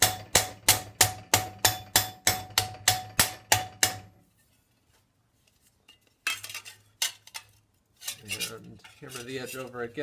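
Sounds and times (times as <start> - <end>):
mallet striking steel sheet: 0.0 - 4.1.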